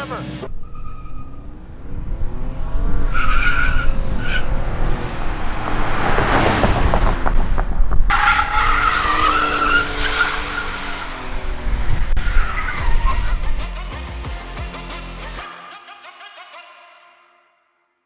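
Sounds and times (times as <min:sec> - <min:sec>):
truck rushing past: 0:00.0 - 0:13.5
truck engine revving: 0:00.0 - 0:13.8
tyres squealing: 0:08.1 - 0:11.1.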